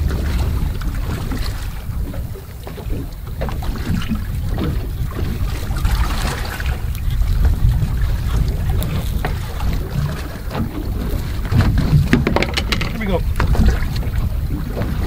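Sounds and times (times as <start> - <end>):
water lapping against hull: 0.0 - 15.0
wind buffeting microphone: 0.0 - 15.0
small knocks and splashes: 8.7 - 14.2.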